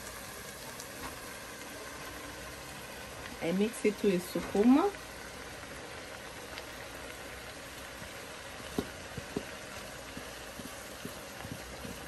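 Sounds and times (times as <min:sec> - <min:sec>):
pot simmering: 0:00.0 - 0:12.0
spatula tapping colander: 0:08.7 - 0:12.0.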